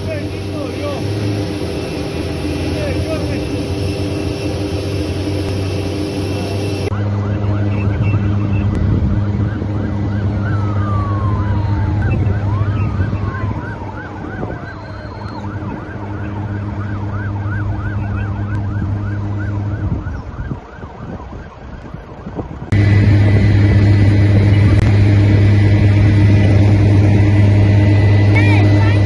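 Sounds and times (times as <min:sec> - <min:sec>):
steady low hum: 0:00.0 - 0:13.3, 0:22.7 - 0:29.0
tone gliding down in pitch: 0:00.0 - 0:20.6, 0:22.7 - 0:29.0
siren yelping: 0:00.0 - 0:29.0.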